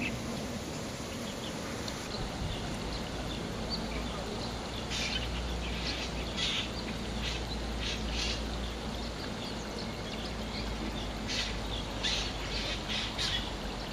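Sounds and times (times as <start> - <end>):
starling harsh raspy calls: 4.8 - 8.4, 11.3 - 13.6.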